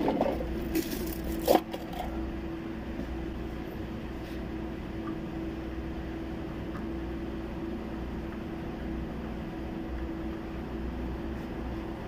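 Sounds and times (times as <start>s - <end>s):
oil filter scraping by hand: 0.0s - 2.2s
steady background hum: 0.0s - 12.0s.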